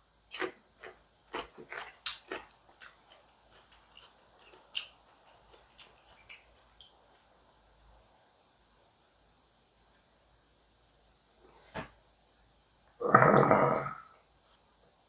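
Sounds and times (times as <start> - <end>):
onion being chewed: 0.3 - 7.9.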